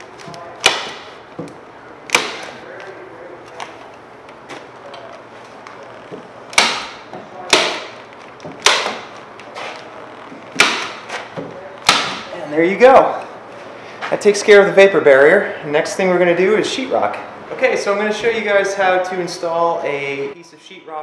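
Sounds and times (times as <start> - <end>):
staple gun shots: 8.6 - 9.1.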